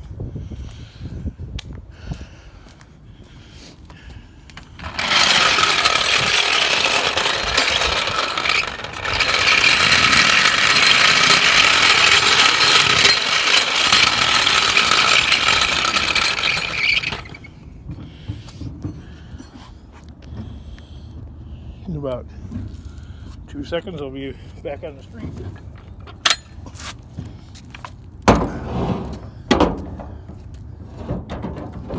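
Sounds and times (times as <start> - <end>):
floor jack wheels grinding on concrete: 4.6 - 20.6, 23.6 - 31.9.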